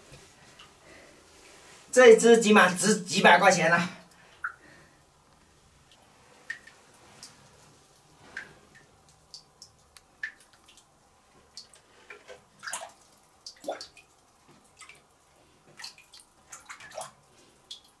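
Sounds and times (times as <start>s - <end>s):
water dripping in cave pool: 4.0s - 4.7s, 5.9s - 7.4s, 8.0s - 18.0s
water splashing: 8.1s - 18.0s.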